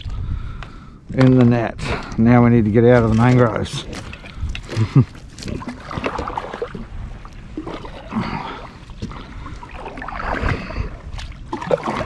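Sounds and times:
paddle splashing in water: 0:03.9 - 0:12.0.

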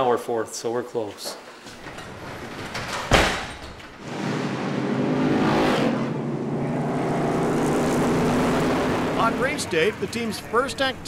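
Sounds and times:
racing car engines: 0:04.0 - 0:11.0.

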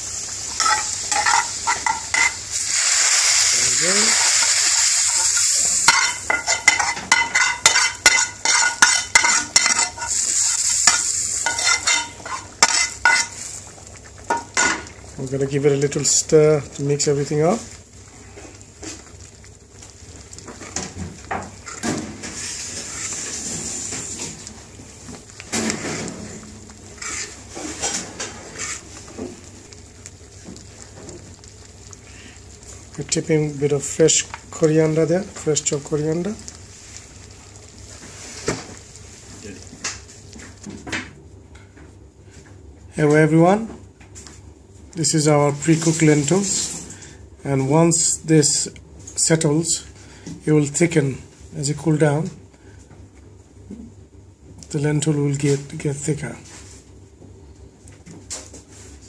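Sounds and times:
hot oil sizzling: 0:00.0 - 0:41.2, 0:45.0 - 0:52.8
ladle scraping saucepan: 0:04.2 - 0:13.6, 0:21.5 - 0:24.5, 0:25.4 - 0:29.5.

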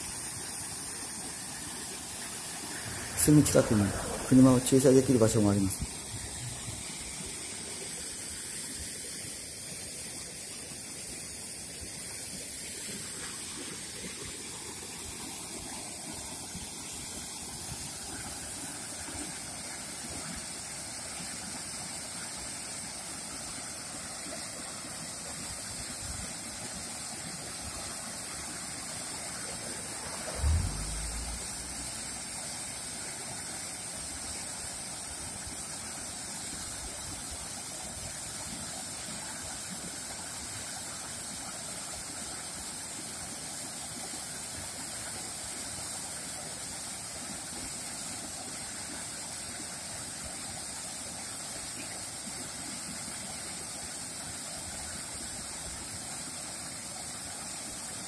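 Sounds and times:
waterfall rushing: 0:00.8 - 0:08.8, 0:27.5 - 0:33.3
low thump: 0:30.2 - 0:32.1.

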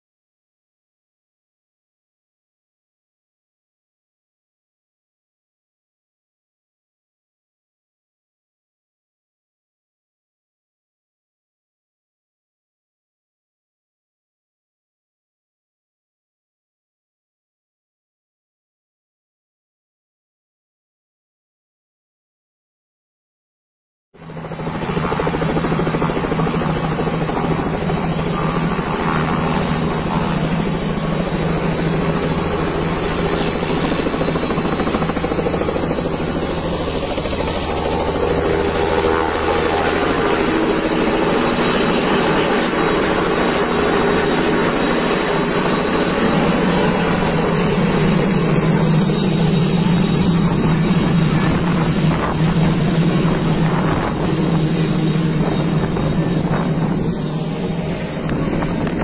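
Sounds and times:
helicopter engine and rotor: 0:24.2 - 0:59.0.

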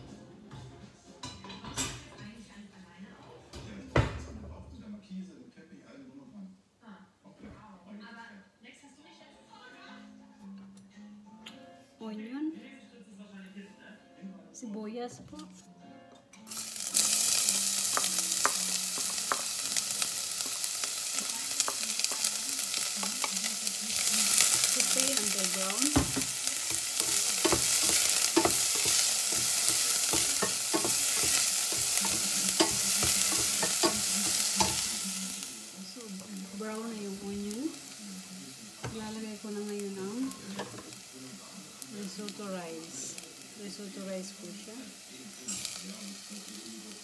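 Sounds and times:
onion sizzling in hot oil: 0:16.5 - 0:47.0.

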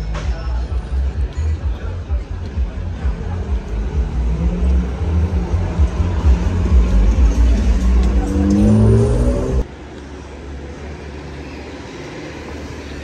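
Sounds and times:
deep traffic rumble: 0:00.0 - 0:13.0
car engine accelerating: 0:02.1 - 0:09.7.

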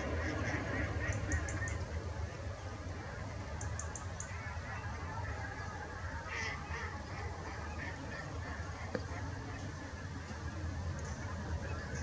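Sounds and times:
waterfowl honking: 0:00.0 - 0:01.9, 0:03.9 - 0:10.3
waterfowl calling: 0:00.0 - 0:02.4, 0:03.5 - 0:10.4
steady low rumble: 0:00.0 - 0:12.0.

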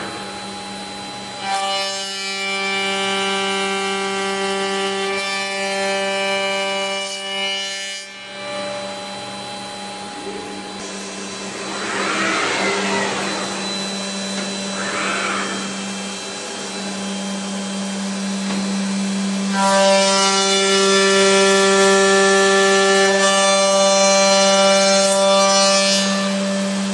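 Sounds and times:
machine hum: 0:00.0 - 0:07.1, 0:08.1 - 0:25.4
machine cutting timber: 0:08.4 - 0:26.1.

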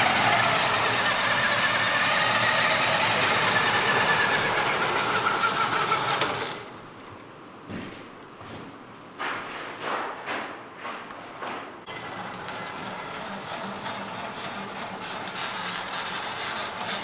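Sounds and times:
toy truck motor with whine: 0:00.0 - 0:06.6, 0:11.9 - 0:17.0.

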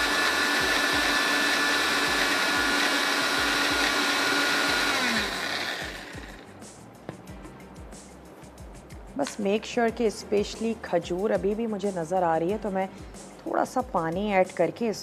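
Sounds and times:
electric blender running: 0:00.0 - 0:06.4.

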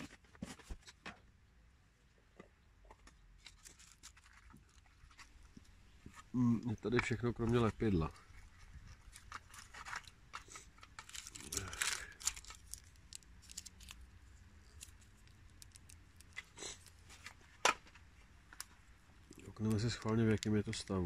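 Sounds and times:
paper packet crinkling: 0:03.4 - 0:05.6, 0:06.8 - 0:17.6, 0:18.5 - 0:21.0
small items clicking in metal tin: 0:09.2 - 0:17.0, 0:18.6 - 0:21.0.

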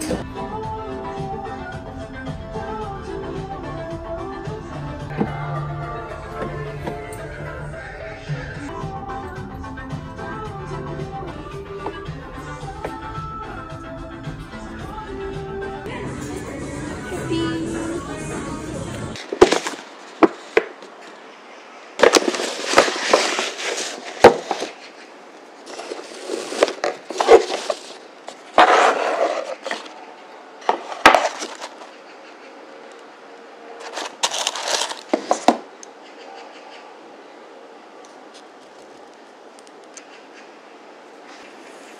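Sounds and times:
paper and cardboard rustling: 0:19.2 - 0:21.2, 0:22.0 - 0:30.0, 0:30.6 - 0:32.0, 0:33.8 - 0:35.7.

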